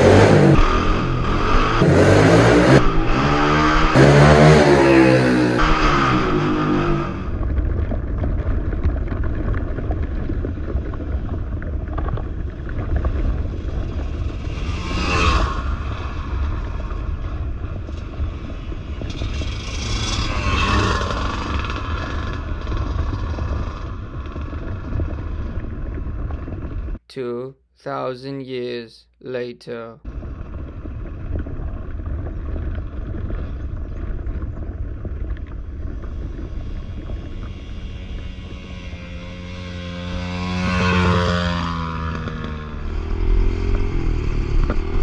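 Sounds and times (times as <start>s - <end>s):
dirt bike riding past: 0.0s - 8.5s, 12.8s - 27.0s, 32.3s - 45.0s.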